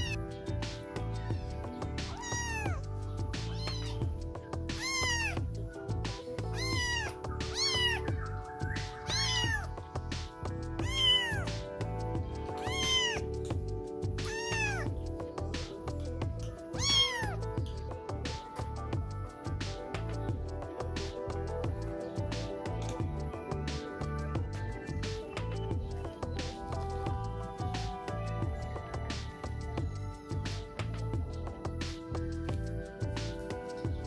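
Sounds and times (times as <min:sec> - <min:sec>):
kittens meowing: 0:00.0 - 0:00.3, 0:01.3 - 0:15.0, 0:16.2 - 0:17.8
background music: 0:00.0 - 0:34.0.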